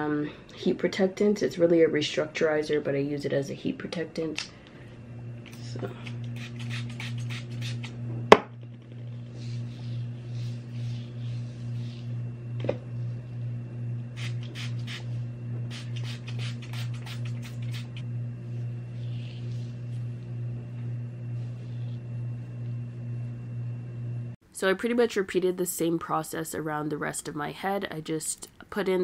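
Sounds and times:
low throbbing hum: 4.6s - 24.4s
spray bottle spritzing: 14.2s - 15.0s, 15.7s - 17.9s.

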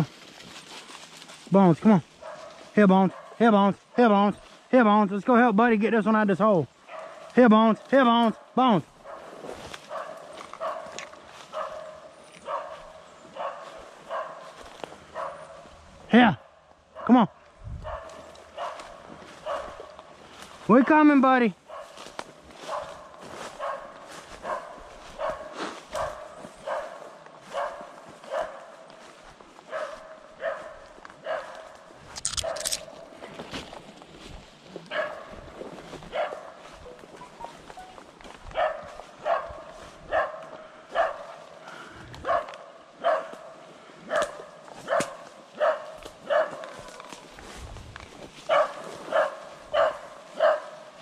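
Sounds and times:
footsteps through dry leaves: 0.0s - 2.8s, 9.0s - 16.0s, 18.0s - 20.7s, 21.6s - 41.9s, 43.2s - 51.0s
dog barking: 2.2s - 3.4s, 6.8s - 7.4s, 8.2s - 15.8s, 16.4s - 20.1s, 21.6s - 28.9s, 29.6s - 33.1s, 34.9s - 36.8s, 38.5s - 41.5s, 42.2s - 47.3s, 48.4s - 51.0s.

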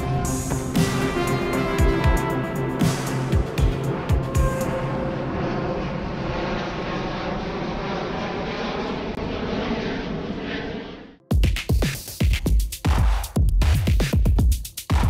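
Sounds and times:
jet plane roar overhead: 0.0s - 11.3s.

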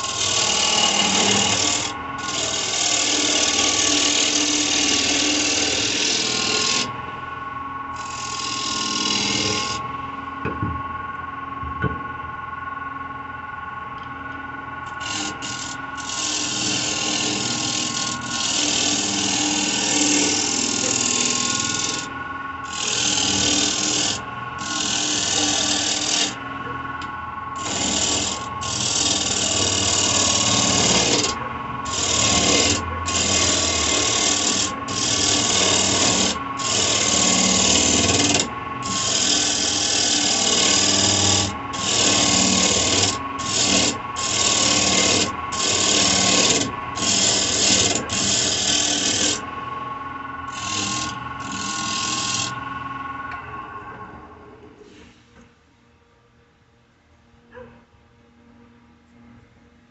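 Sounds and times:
gouge scraping wood: 0.0s - 6.9s, 8.0s - 9.8s, 15.0s - 22.1s, 22.7s - 26.4s, 27.6s - 49.4s, 50.5s - 52.5s
lathe motor hum: 0.0s - 54.8s.

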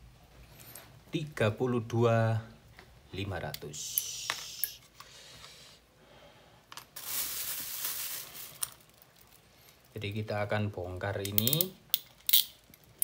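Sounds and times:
small sharp clicks of parts: 3.5s - 5.6s, 11.2s - 13.0s
plastic bag rustling: 6.9s - 10.0s.

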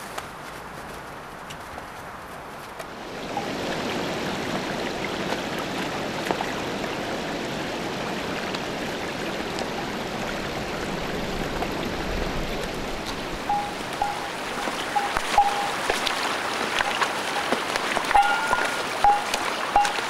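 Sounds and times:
footsteps in snow: 0.0s - 3.0s
creek water running: 0.5s - 20.0s.

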